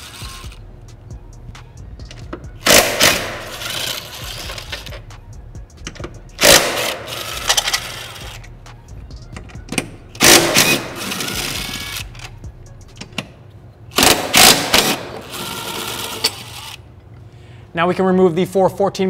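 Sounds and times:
impact wrench hammering: 2.1s - 5.1s, 5.8s - 8.2s, 9.4s - 12.2s, 14.0s - 16.5s.

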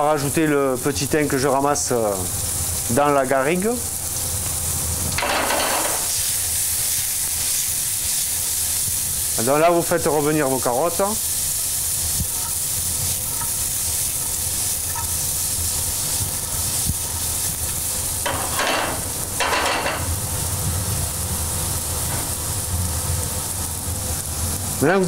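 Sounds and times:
carrots sizzling in a frying pan: 0.0s - 25.0s
spatula stirring in a pan: 11.6s - 18.8s.

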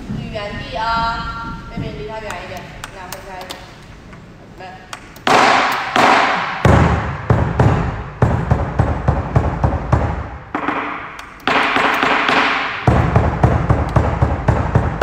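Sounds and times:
rapid loud drum beats: 5.3s - 15.0s.

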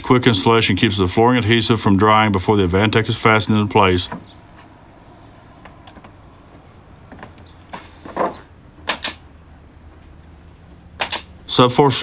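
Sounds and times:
nail gun shots: 8.8s - 9.3s, 11.0s - 11.4s.

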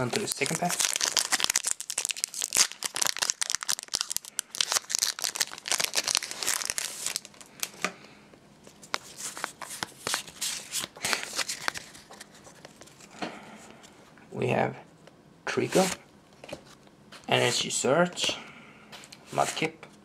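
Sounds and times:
foil wrapper crinkling: 0.0s - 7.7s
cards rustling and clicking: 8.7s - 13.1s.

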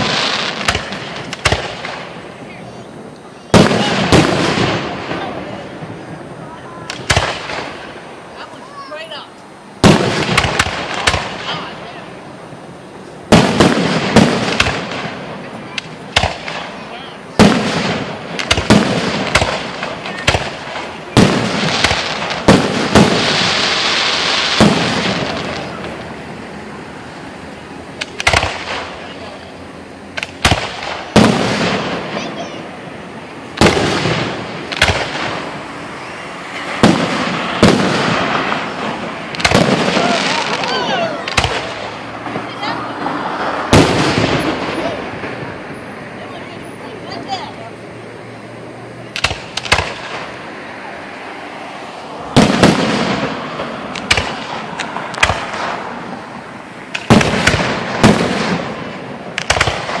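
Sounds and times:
fireworks shells bursting: 0.0s - 2.4s, 9.8s - 11.7s, 13.2s - 46.0s, 49.1s - 50.5s, 52.3s - 60.0s.

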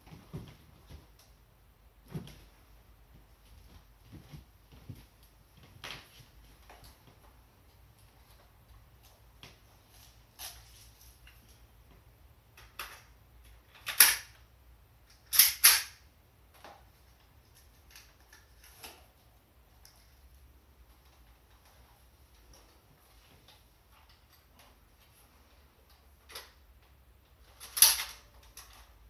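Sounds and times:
gun handling clicks: 15.1s - 16.0s.

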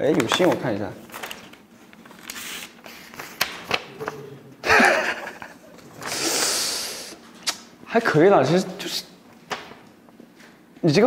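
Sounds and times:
paper rustling and crinkling: 0.0s - 4.2s
young man laughing: 4.3s - 5.9s.

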